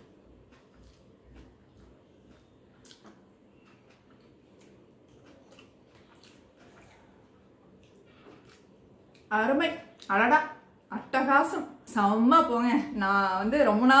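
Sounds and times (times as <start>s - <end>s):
fingers mixing food wet squishes: 0.3s - 10.1s.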